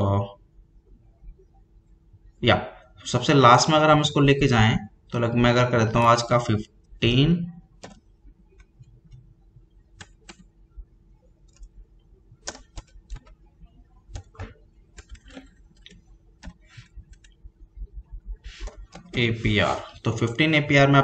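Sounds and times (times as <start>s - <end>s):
keyboard and mouse clicks: 7.8s - 9.3s, 9.9s - 10.5s, 11.4s - 11.8s, 12.4s - 13.4s, 14.1s - 17.5s, 18.5s - 19.2s.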